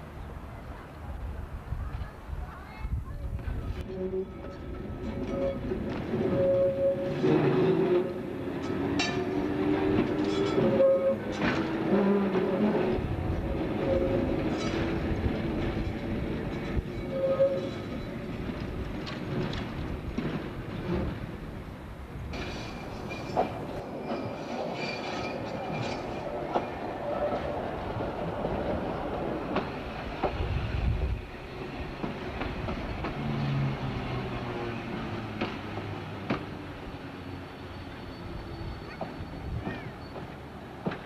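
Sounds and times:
tram wheels rumbling on rails: 0.0s - 41.0s
tram wheel squeal: 3.8s - 20.0s, 22.3s - 41.0s
wheels clicking over rail joints: 14.4s - 21.3s.

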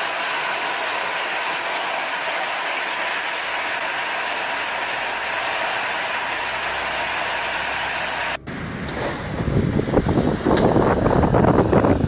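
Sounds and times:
heavy rain pouring: 0.0s - 8.4s
storm wind: 8.4s - 12.0s.

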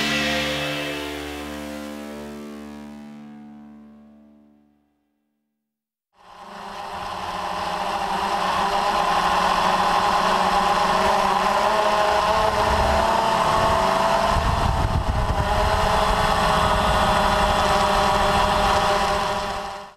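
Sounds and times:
drone propellers whining: 6.2s - 19.9s
low wind rumble: 6.4s - 19.9s.

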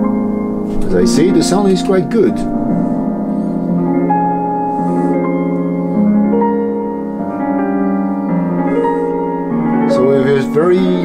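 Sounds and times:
piano music from a radio speaker: 0.0s - 11.0s.

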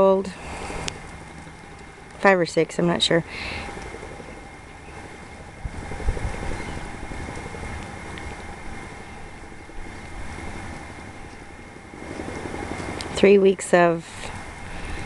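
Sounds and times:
wind rumbling on microphone: 3.0s - 15.0s.

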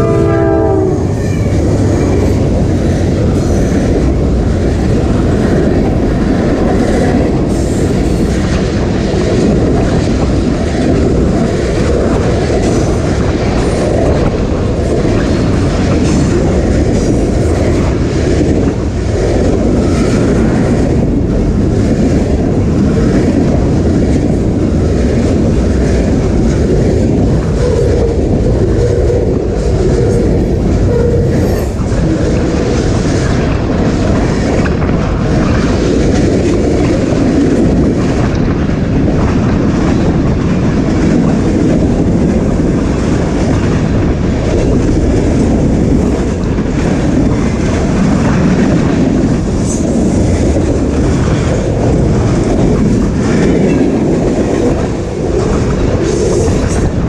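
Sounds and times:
locomotive horn: 0.0s - 1.2s
freight cars rumbling clickety-clack: 0.0s - 57.0s.

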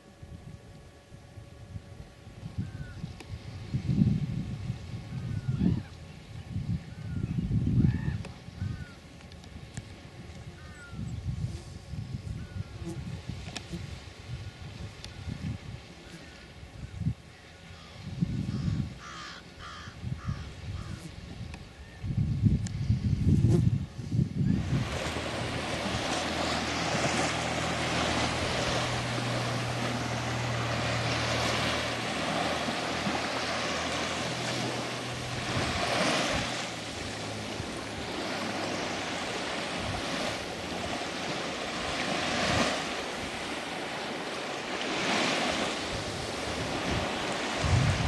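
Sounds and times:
low steady drone: 23.9s - 42.2s
small waves washing on shore: 24.5s - 48.0s.

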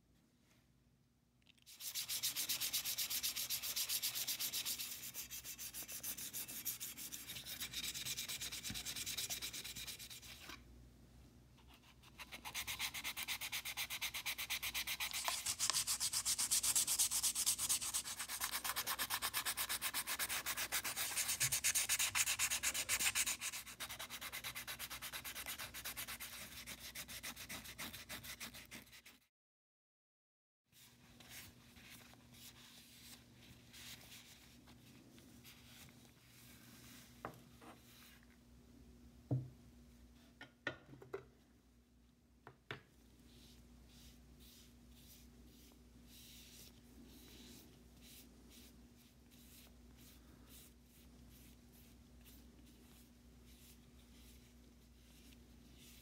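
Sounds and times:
hand sanding with sandpaper: 1.7s - 10.4s, 12.0s - 29.3s, 43.3s - 56.0s.

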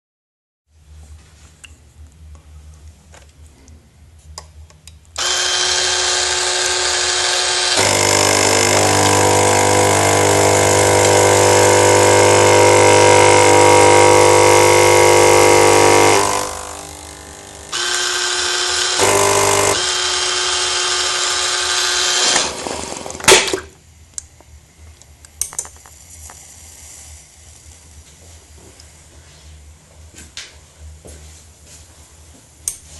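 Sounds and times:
espresso machine pump buzzing: 5.2s - 23.6s.

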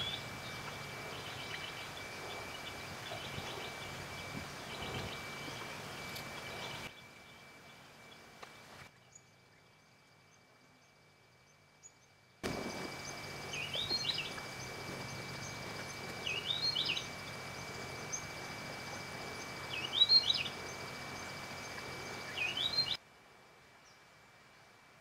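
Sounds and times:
small bird chirping song: 15.4s - 17.1s, 19.7s - 20.8s, 21.6s - 23.0s.

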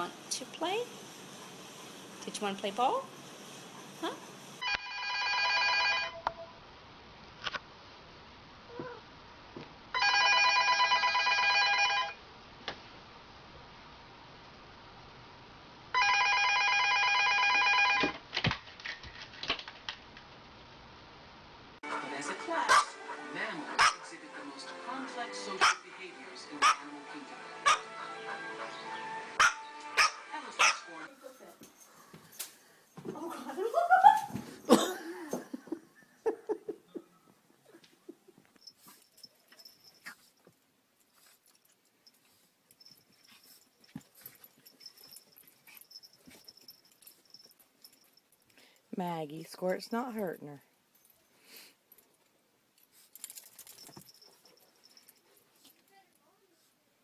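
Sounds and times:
telephone ringing: 4.6s - 6.5s, 10.0s - 12.2s, 16.0s - 18.1s
dog noises during play: 26.6s - 26.9s, 27.6s - 35.7s, 37.5s - 48.8s, 52.0s - 56.8s
person laughing: 33.6s - 38.4s.

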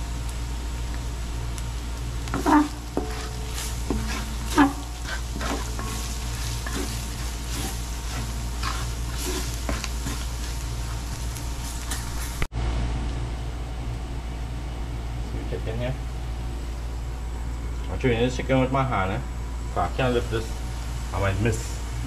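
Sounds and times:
food frying in oil: 0.0s - 12.5s
wooden spoon scraping a pot: 2.2s - 12.5s.

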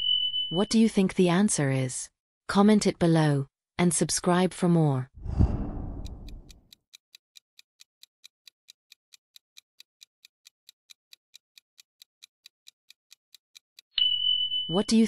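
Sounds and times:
clock ticking: 5.7s - 13.9s.

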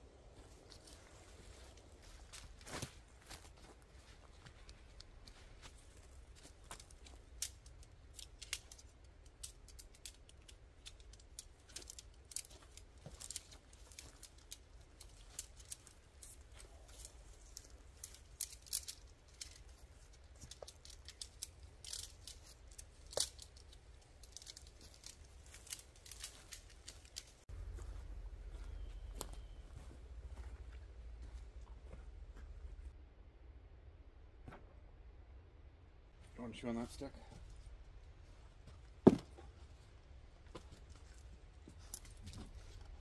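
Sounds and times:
crackling and rustling: 0.2s - 33.0s, 36.2s - 43.0s
footsteps on pine needles: 11.6s - 32.0s
low steady rumble: 27.5s - 36.4s.

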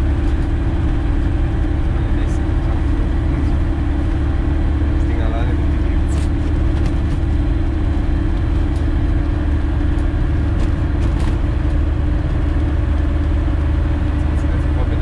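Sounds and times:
light aircraft engine and propeller: 0.0s - 15.0s.

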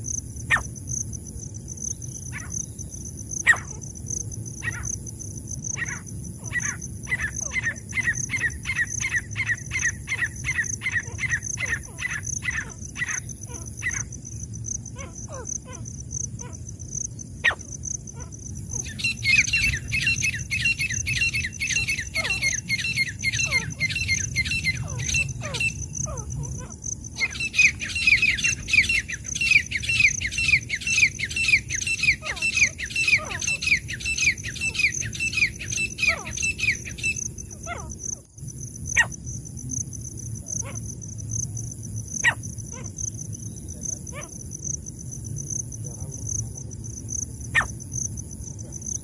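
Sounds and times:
birds whistling calls: 5.7s - 14.1s, 18.2s - 37.9s.

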